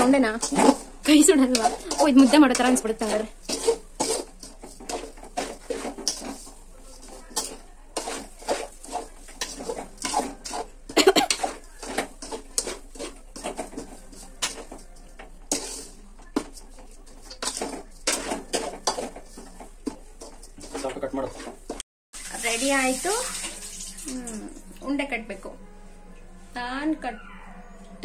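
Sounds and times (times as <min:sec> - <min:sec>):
metal spoon scraping metal pan: 0:00.0 - 0:21.8.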